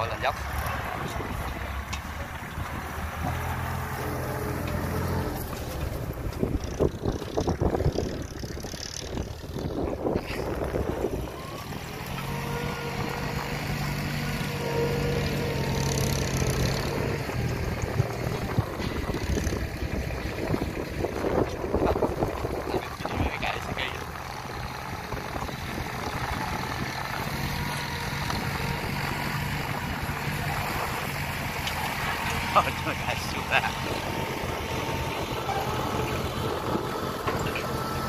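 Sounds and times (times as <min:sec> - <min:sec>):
tractor engine running: 0:00.0 - 0:38.0
wind on microphone: 0:05.8 - 0:11.4, 0:17.4 - 0:31.1.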